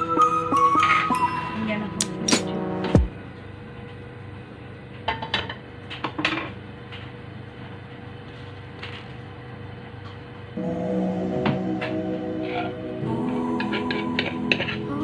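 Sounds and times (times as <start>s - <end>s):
steady low hum: 1.4s - 5.0s, 9.3s - 15.0s.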